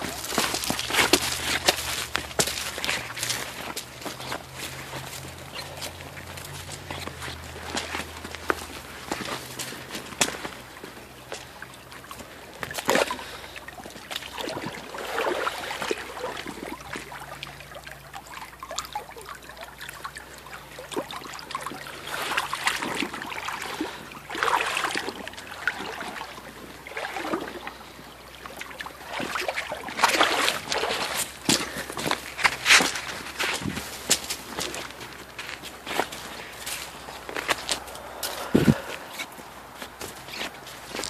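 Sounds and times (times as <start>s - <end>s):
feet wading through water: 0.0s - 41.0s
water trickling over pebbles: 0.0s - 41.0s.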